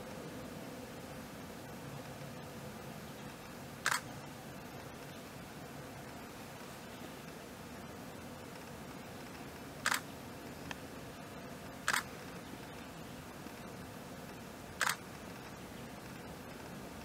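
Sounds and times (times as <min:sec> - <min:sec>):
faint steady hiss: 0:00.0 - 0:17.0
sharp double clicks: 0:03.8 - 0:04.1, 0:09.8 - 0:10.0, 0:11.9 - 0:12.1, 0:14.8 - 0:15.0.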